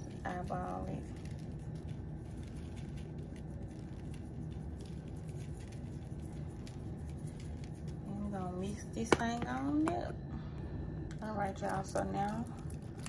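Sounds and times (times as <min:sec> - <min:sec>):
seasoning grains pattering: 0:00.0 - 0:09.9
steady low hum: 0:00.0 - 0:13.0.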